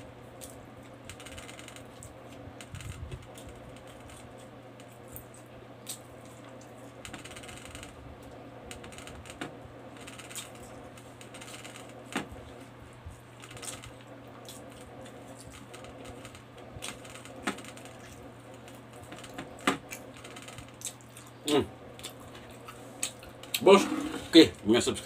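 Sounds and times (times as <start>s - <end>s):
steady low hum: 0.0s - 25.0s
chewing and lip-smacking: 17.8s - 21.4s, 22.0s - 23.6s.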